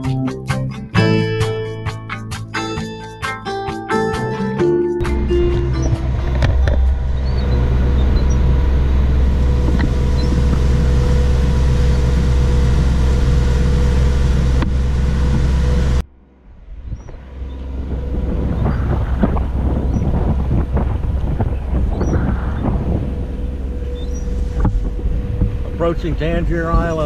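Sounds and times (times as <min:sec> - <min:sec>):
boat engine droning: 0:05.0 - 0:27.0
wind buffeting microphone: 0:05.1 - 0:27.0.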